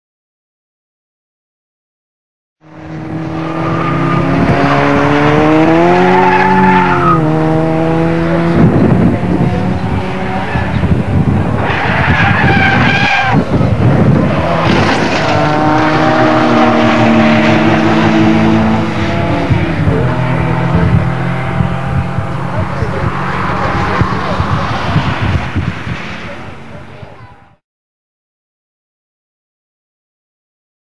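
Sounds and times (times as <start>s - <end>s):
racing car engines at high revs: 2.6s - 27.2s
tyres squealing and skidding: 3.3s - 7.3s, 9.8s - 13.7s, 22.5s - 27.3s.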